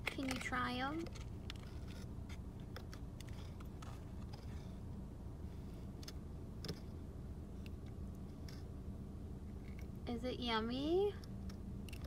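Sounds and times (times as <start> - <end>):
paperboard box clicks and crinkles: 0.0 - 4.6
steady low rumble: 0.0 - 12.0.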